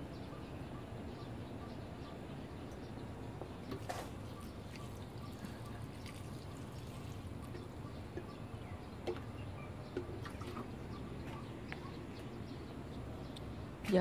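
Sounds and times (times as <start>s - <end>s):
water drips: 2.7s - 12.3s
water trickling: 3.5s - 11.6s.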